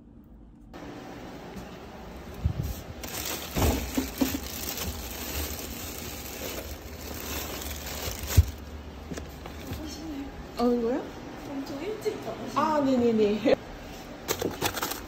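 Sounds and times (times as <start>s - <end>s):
plastic bags crinkling: 2.2s - 9.8s
plastic containers knocking: 3.5s - 5.0s.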